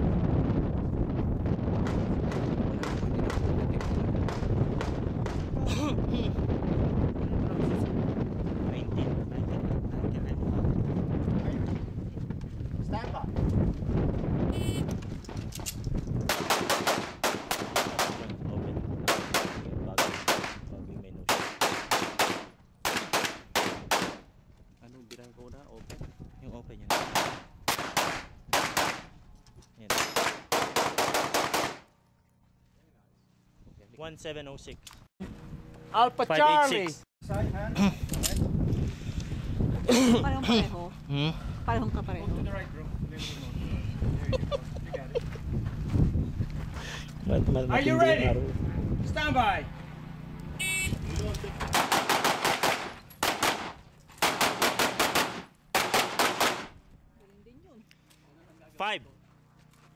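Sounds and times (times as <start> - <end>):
handgun shots: 15.6 - 18.3, 19.1 - 20.6, 21.3 - 24.2, 26.9 - 29.1, 29.9 - 31.9, 51.6 - 56.8.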